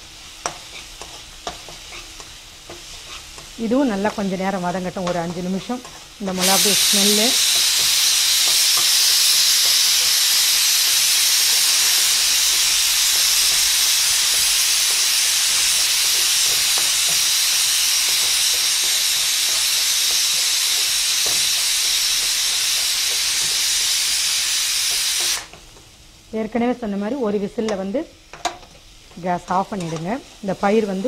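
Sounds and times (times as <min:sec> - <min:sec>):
spatula scraping frying pan: 0:00.4 - 0:03.6, 0:05.0 - 0:10.2
pressure cooker whistling: 0:06.4 - 0:25.6.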